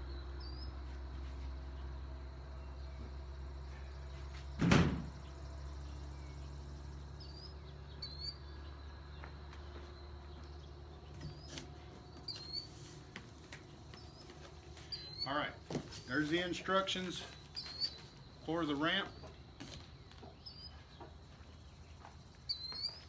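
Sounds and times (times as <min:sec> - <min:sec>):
bird chirps: 0:05.2 - 0:23.0.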